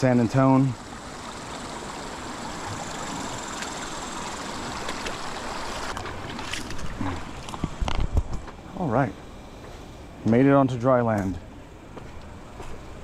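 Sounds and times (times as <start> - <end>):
river water rushing and splashing: 0.0 - 7.8.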